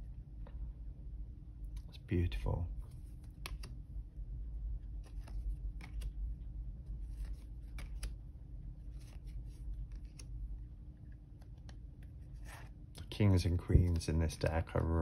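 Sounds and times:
low steady hum: 0.0s - 15.0s
cards tapping and sliding: 2.9s - 3.8s, 5.0s - 6.2s, 7.0s - 8.2s, 8.9s - 10.3s.

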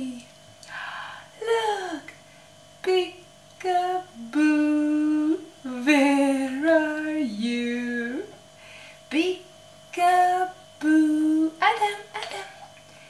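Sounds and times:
woman singing wordless tune: 0.0s - 0.3s, 2.8s - 8.4s, 9.1s - 12.5s.

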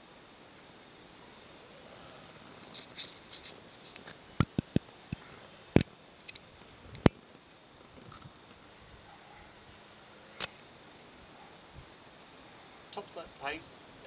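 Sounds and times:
paintbrush strokes: 2.5s - 4.2s
sharp clicks and knocks: 4.0s - 6.4s.

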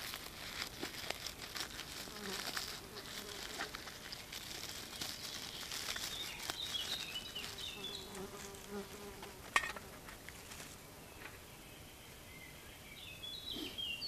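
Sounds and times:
dry plant material crackling: 0.0s - 10.8s
insect buzzing: 0.0s - 10.8s.

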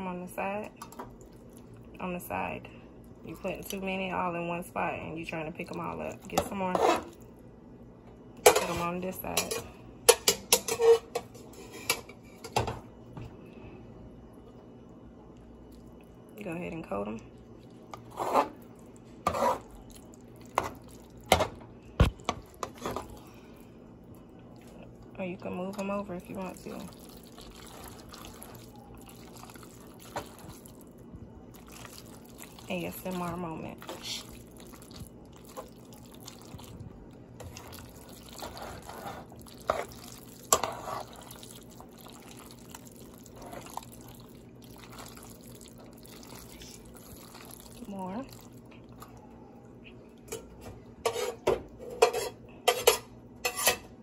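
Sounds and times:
tongs tossing saucy pasta: 17.4s - 21.4s, 22.4s - 49.2s.

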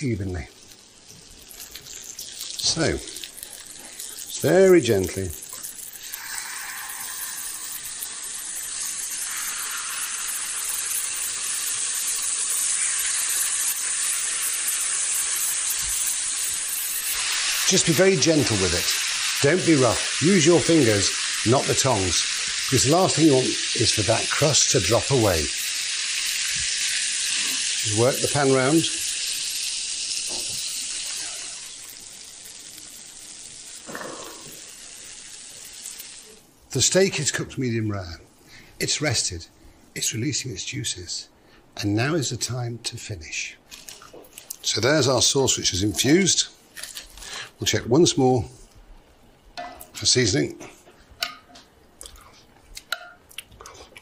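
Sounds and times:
steaks sizzling in a pan: 0.1s - 37.0s.

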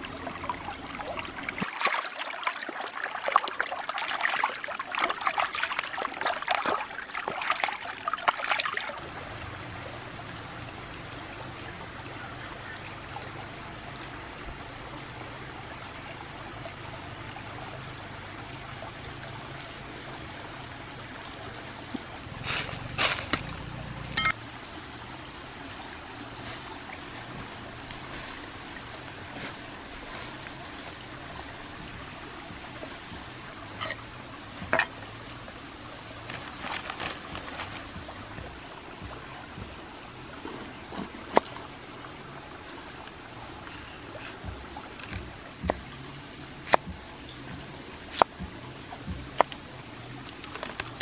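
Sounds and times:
stream trickling: 0.0s - 51.0s
thin high whine: 8.9s - 24.6s, 25.7s - 35.4s.

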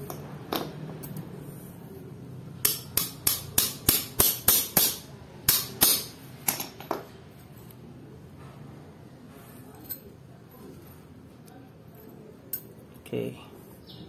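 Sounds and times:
wrench banging on steel cog: 2.6s - 7.1s.

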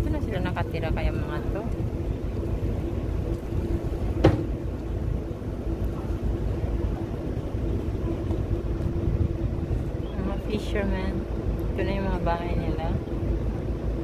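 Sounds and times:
boat engine rumbling: 0.0s - 14.0s
sharp knock: 4.2s - 4.5s.

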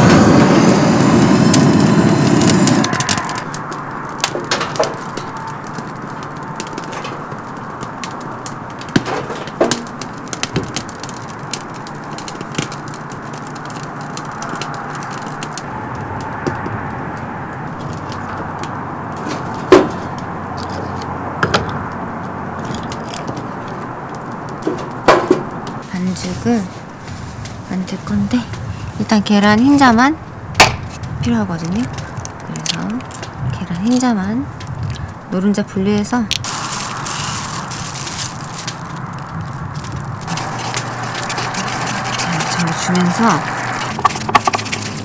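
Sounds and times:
gas torch blast: 0.0s - 13.0s, 36.4s - 45.0s
firewood crackling and snapping: 0.0s - 45.0s.

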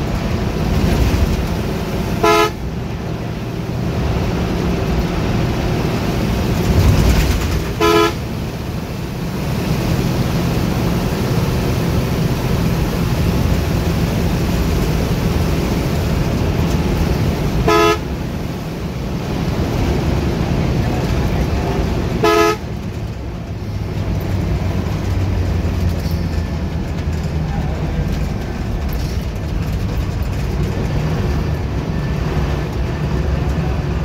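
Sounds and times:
bus engine: 0.0s - 34.0s
road noise: 0.0s - 34.0s
bus horn blasts: 2.1s - 2.7s, 7.6s - 8.6s, 17.5s - 18.3s, 22.1s - 22.9s.

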